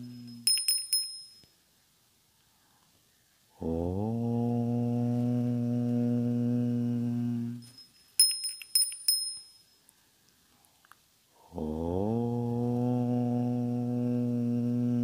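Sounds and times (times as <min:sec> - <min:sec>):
small high-pitched bell strikes: 0:00.0 - 0:01.6, 0:07.6 - 0:09.8
deep chanted om: 0:03.5 - 0:07.7, 0:11.4 - 0:15.0.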